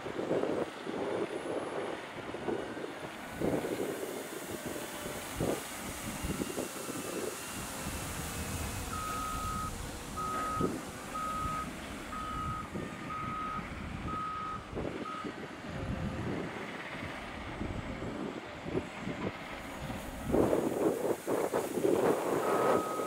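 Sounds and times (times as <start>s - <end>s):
diesel engine running: 0.0s - 23.0s
reversing alarm beeping: 7.0s - 15.3s, 22.3s - 23.0s.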